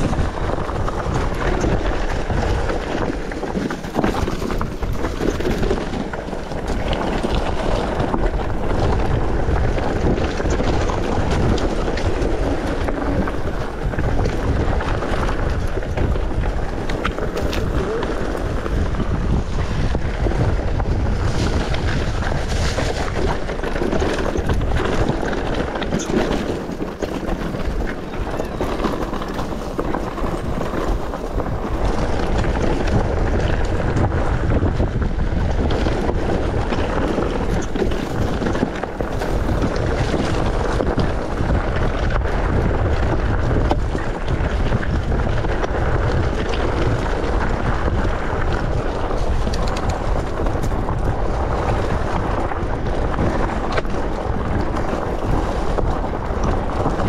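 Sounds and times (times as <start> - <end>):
bike knocks and rattles: 0.0 - 57.0
tyres rumbling on trail: 0.0 - 57.0
wind buffeting microphone: 0.0 - 57.0.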